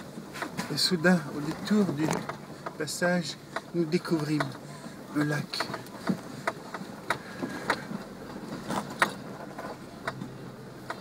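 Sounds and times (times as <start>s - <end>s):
low engine hum: 0.0s - 11.0s
sharp knocks and clicks: 3.5s - 4.6s, 5.5s - 11.0s.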